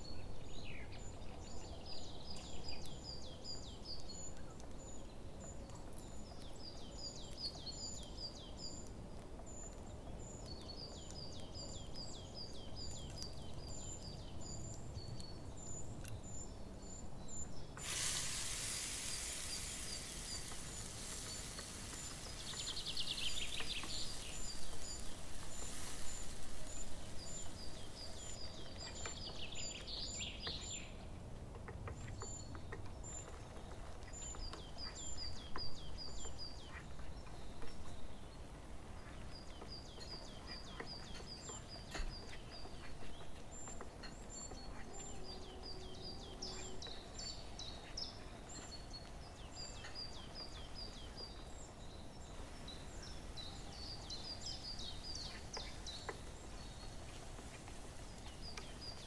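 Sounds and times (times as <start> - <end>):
paste sizzling in hot oil: 17.8 - 28.3
high bird chirps: 17.8 - 30.6.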